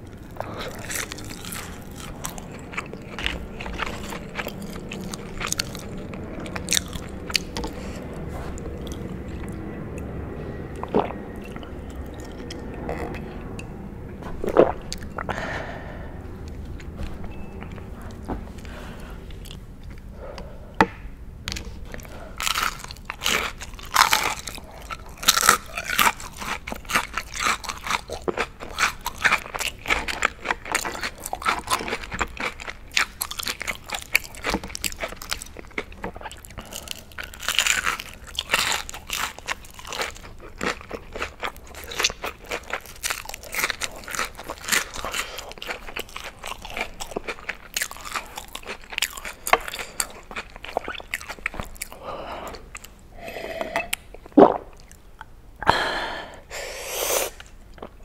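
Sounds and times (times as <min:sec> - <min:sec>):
crunching onion rings: 0:00.0 - 0:13.6, 0:21.5 - 0:53.0.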